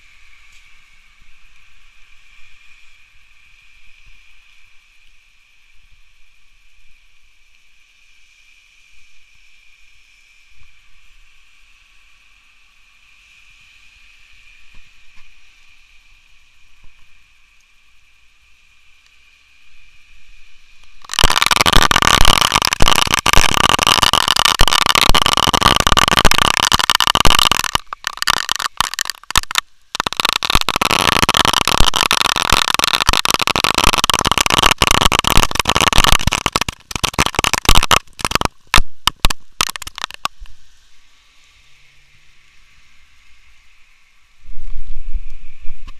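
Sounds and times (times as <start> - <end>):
rain drops crackling: 18.8 - 40.7.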